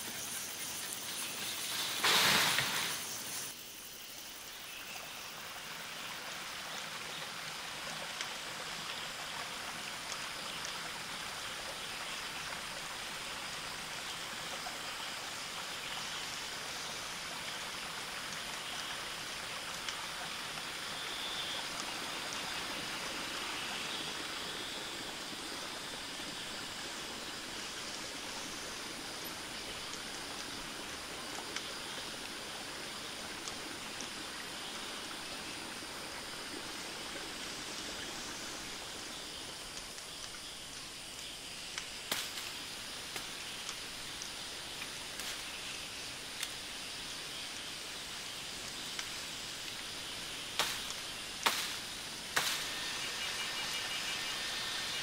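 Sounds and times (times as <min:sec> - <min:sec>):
stream flowing over rocks: 0:05.0 - 0:53.1.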